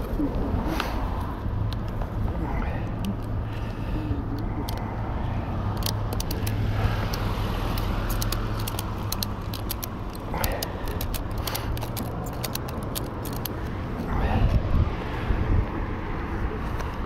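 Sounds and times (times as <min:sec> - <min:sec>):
sharp clicks and crackles: 0:00.0 - 0:05.0, 0:05.6 - 0:14.6
camera handling noise: 0:05.7 - 0:14.6.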